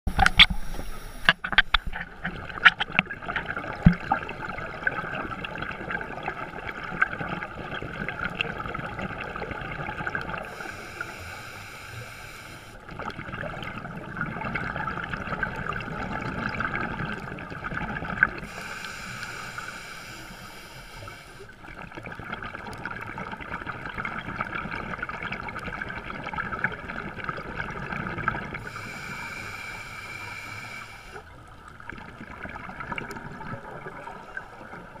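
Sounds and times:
exhaled bubbles gurgling: 0:00.1 - 0:35.0
diver breathing through regulator: 0:10.4 - 0:12.8, 0:18.4 - 0:21.6, 0:28.6 - 0:31.3.

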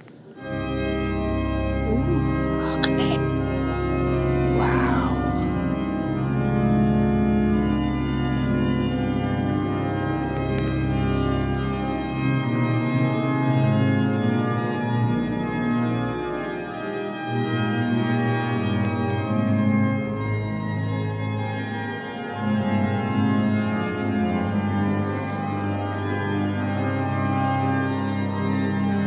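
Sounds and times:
pipe organ chords: 0:00.1 - 0:29.0
deep organ bass notes: 0:03.2 - 0:04.6, 0:05.2 - 0:25.0.

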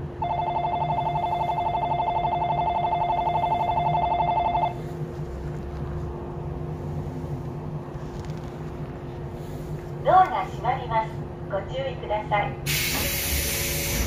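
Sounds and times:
steady hum: 0:00.0 - 0:14.0
electronic departure bell trilling: 0:00.2 - 0:04.8.

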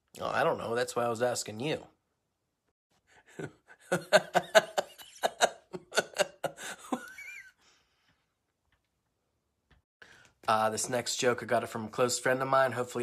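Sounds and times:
man laughing: 0:03.1 - 0:07.7.

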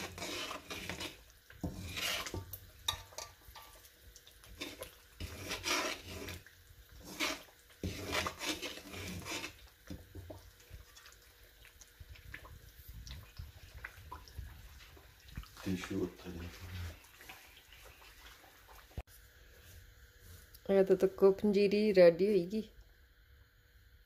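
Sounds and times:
spatula scraping metal pan: 0:00.0 - 0:10.0.

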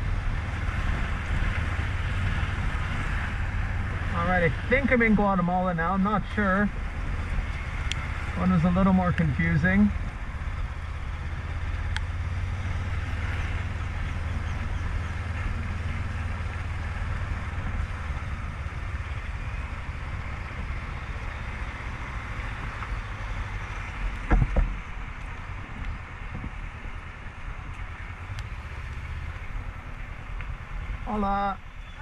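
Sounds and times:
motorcycle engine humming: 0:00.0 - 0:32.0
wind and road noise: 0:00.0 - 0:32.0.

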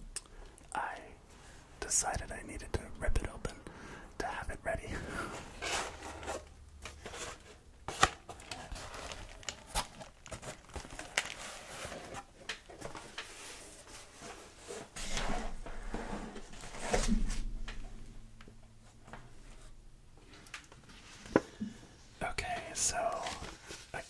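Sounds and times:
paper filling crinkling: 0:08.0 - 0:12.2.

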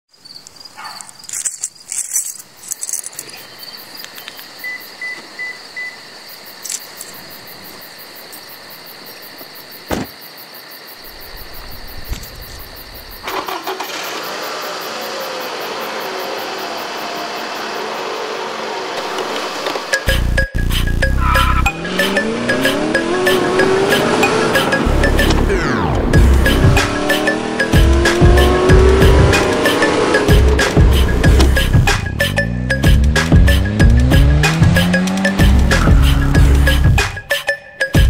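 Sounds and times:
car engine running: 0:21.0 - 0:37.0.

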